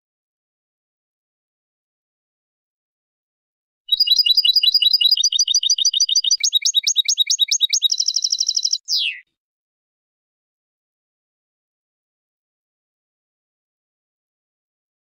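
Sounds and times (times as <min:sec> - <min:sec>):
goldfinch song trills: 0:03.9 - 0:09.2.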